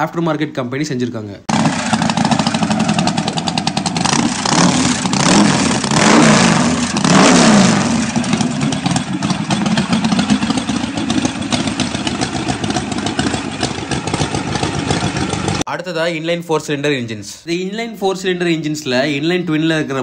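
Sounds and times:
motorcycle engine revving and idling: 0:01.5 - 0:15.7.

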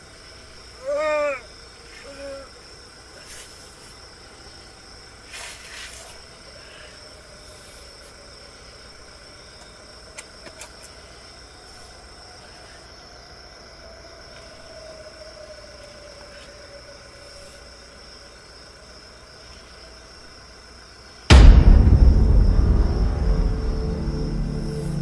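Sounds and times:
crickets chirring: 0:00.0 - 0:21.3, 0:21.9 - 0:25.0
faint low tone: 0:21.3 - 0:25.0.

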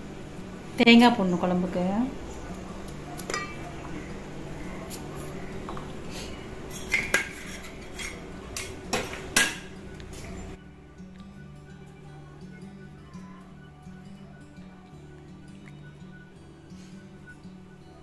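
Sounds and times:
steady low hum: 0:00.0 - 0:18.0
metal utensils and pots clinking: 0:03.2 - 0:04.0, 0:06.7 - 0:10.6.

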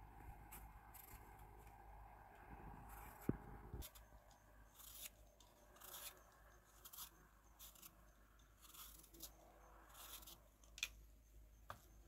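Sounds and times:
peeler scraping apple skin: 0:02.8 - 0:11.0.

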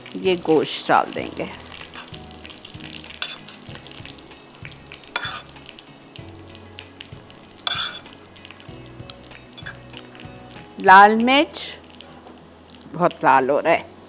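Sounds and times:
onions sizzling in oil: 0:00.0 - 0:14.0
metal spoon clinking on bowl: 0:03.2 - 0:03.6, 0:07.6 - 0:08.1.

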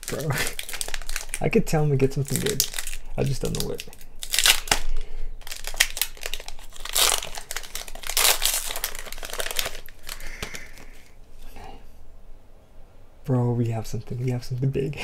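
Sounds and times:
foil wrapper crinkling and tearing: 0:00.0 - 0:11.1.

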